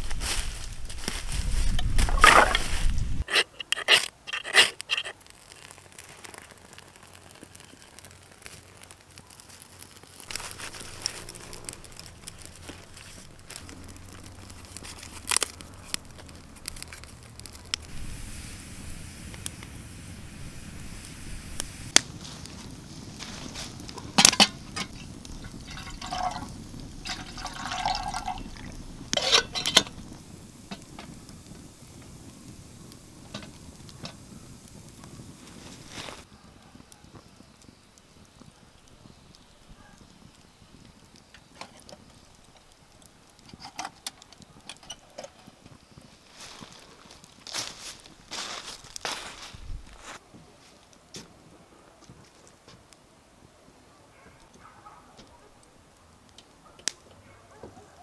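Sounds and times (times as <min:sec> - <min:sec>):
rustling leaves: 0:00.0 - 0:58.0
small fire crackling: 0:00.0 - 0:58.0
logs knocking together: 0:01.8 - 0:05.1
water poured into metal kettle: 0:25.6 - 0:30.0.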